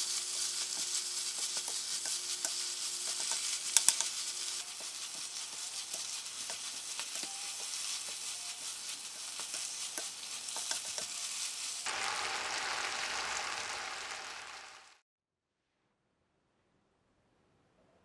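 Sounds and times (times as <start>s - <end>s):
wooden spatula scraping a pan: 0.0s - 11.8s
food sizzling in a frying pan: 0.0s - 15.0s.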